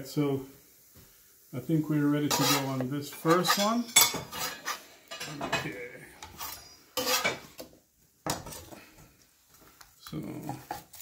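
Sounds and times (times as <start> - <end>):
utensils clattering and scraping: 2.2 - 7.7.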